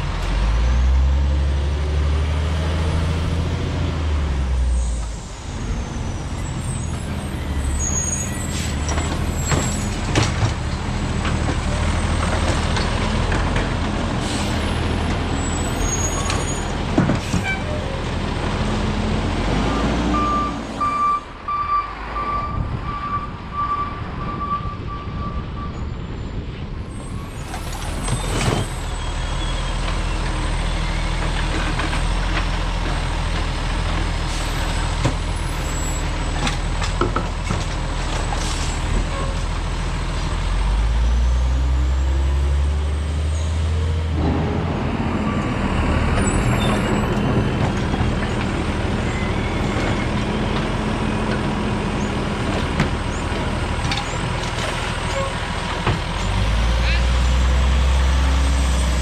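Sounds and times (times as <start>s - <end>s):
reversing beeper: 19.7s - 26.3s.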